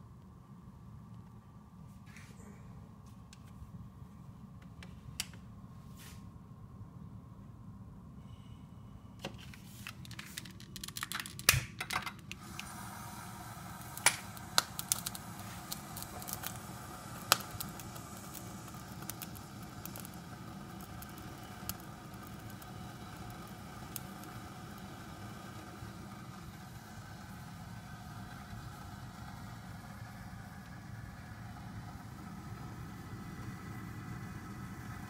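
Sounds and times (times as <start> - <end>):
gas burner hissing: 12.3 - 35.0.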